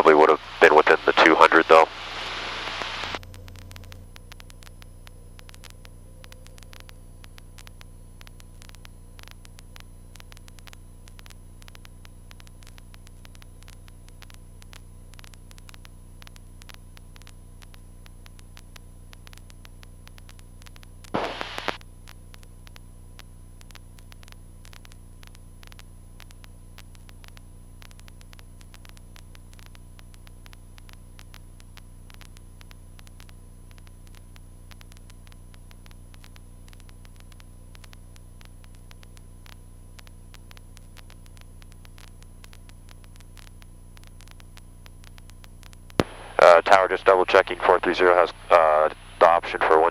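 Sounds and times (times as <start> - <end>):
loud static burst: 0.0 - 3.2, 21.1 - 21.8, 46.0 - 49.9
radio intercom hiss and hum: 0.0 - 9.6, 20.0 - 21.8, 45.9 - 49.9
static crackles: 0.0 - 49.9.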